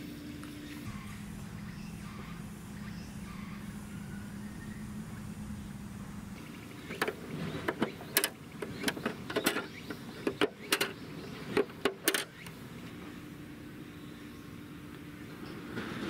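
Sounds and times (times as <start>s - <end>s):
plastic toy doors clicking: 6.9s - 12.4s.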